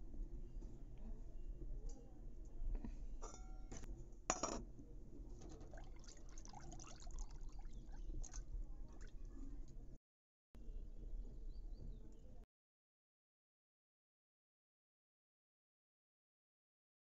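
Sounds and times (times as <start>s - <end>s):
hand mixing water in a bowl: 5.4s - 9.8s.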